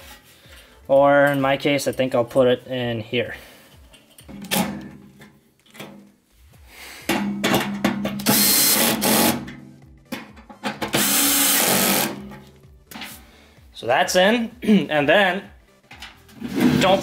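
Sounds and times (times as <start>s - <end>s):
cordless drill driving screws: 8.3s - 9.4s, 11.0s - 12.2s.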